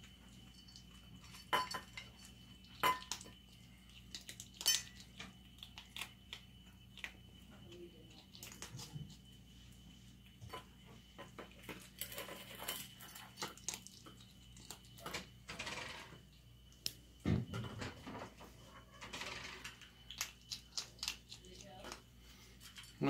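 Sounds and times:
kibble clinking in metal bowl: 0.6s - 2.2s.

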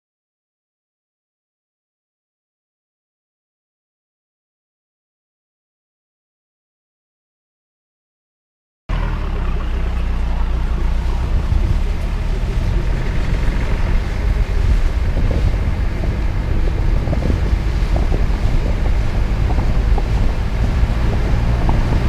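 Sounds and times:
car engine and tyres on wet road: 8.9s - 22.0s
wind buffeting microphone: 9.0s - 22.0s.

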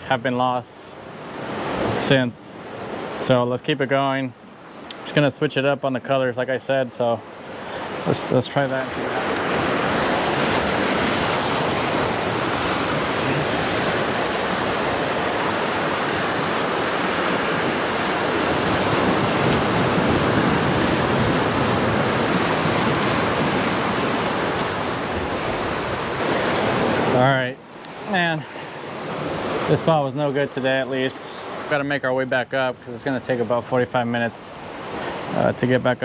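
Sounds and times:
surf breaking on rocks: 7.5s - 32.4s.

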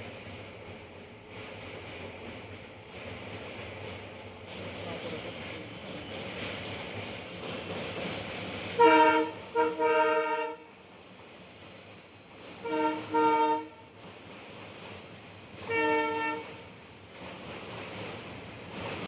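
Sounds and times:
locomotive air horn blasts: 8.8s - 10.7s, 12.6s - 13.9s, 15.7s - 16.6s.

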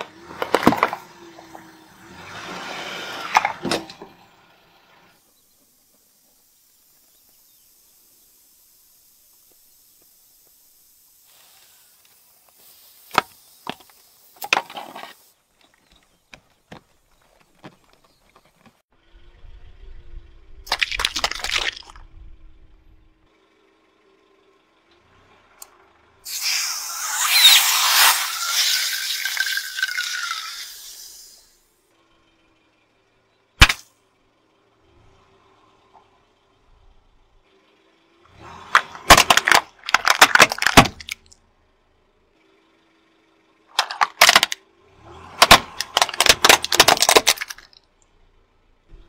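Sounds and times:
car tyre rolling onto board: 0.0s - 4.3s, 13.1s - 15.2s
aerosol can hissing: 6.6s - 14.4s, 26.3s - 31.5s
wood cracking and snapping: 38.7s - 41.3s, 45.4s - 47.8s.

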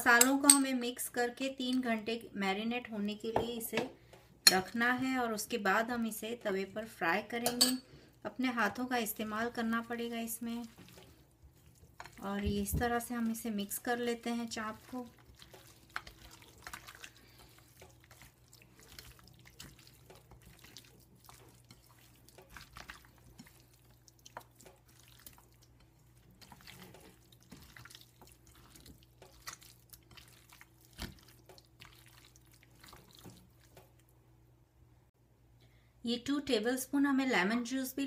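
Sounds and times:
hand squelching wet marinade: 8.7s - 34.2s.

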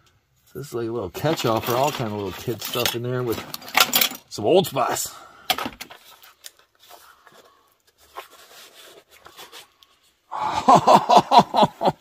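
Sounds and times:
small objects clicking and rustling: 1.2s - 4.3s.

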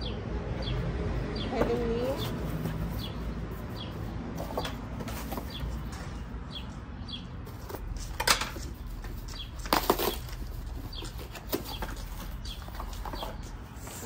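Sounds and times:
cardboard and paper rustling: 1.6s - 6.2s, 7.4s - 14.0s.

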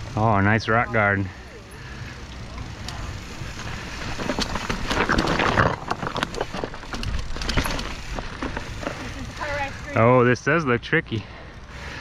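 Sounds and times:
bike rattling and knocking: 0.0s - 10.1s
bike tyres crunching over rocks: 1.9s - 10.0s.

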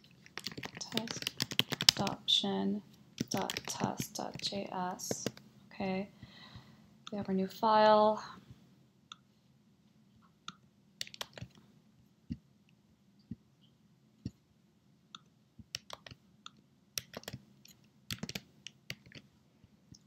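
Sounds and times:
faint room hiss: 0.0s - 20.0s
computer keystrokes and clicks: 0.3s - 2.2s, 3.2s - 5.4s, 10.4s - 11.6s, 15.2s - 19.3s.

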